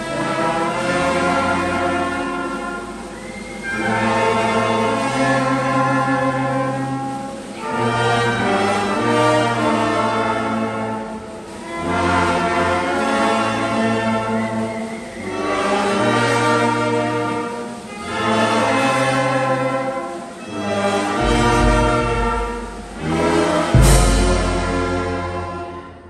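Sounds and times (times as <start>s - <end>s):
instrumental ensemble music: 0.0s - 26.0s.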